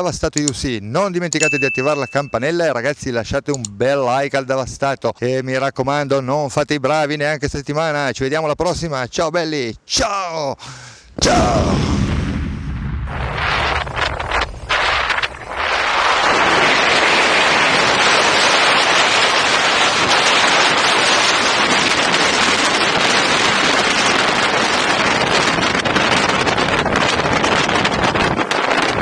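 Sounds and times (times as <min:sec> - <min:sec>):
wind rushing over microphone: 0:11.1 - 0:29.0.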